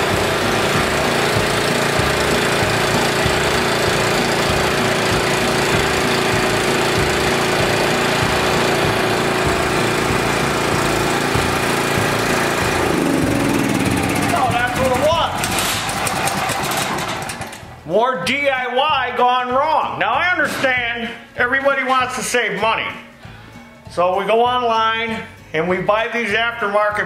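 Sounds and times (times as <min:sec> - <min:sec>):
generator engine running: 0:00.0 - 0:17.9.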